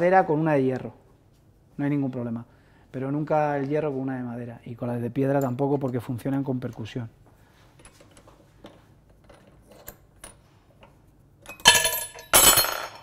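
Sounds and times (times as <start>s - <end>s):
metallic clinks ringing: 11.4s - 13.0s.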